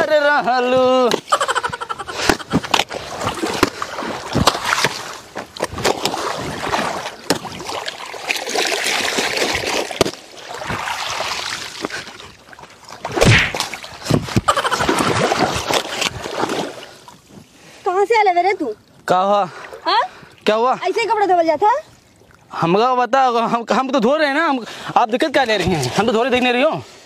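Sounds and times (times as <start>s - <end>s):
water splashing: 1.0s - 17.4s
wet clothes slapping on stones: 2.2s - 12.0s, 13.0s - 16.8s.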